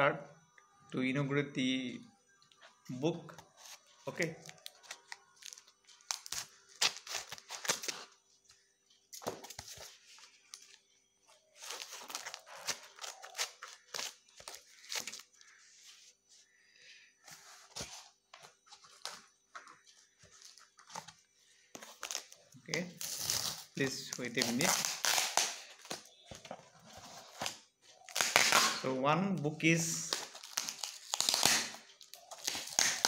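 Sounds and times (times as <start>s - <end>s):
cardboard tearing and crinkling: 4.5s - 8.1s, 11.6s - 15.6s, 21.8s - 26.2s, 26.9s - 28.9s, 30.0s - 33.0s.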